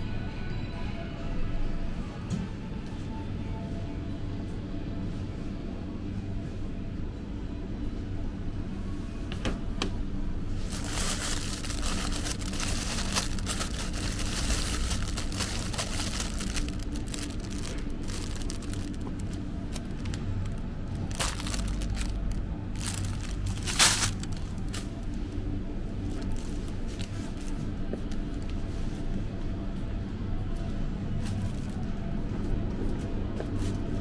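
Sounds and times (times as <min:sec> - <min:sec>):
low steady hum: 0:00.0 - 0:34.0
plastic bags crinkling: 0:10.6 - 0:25.0.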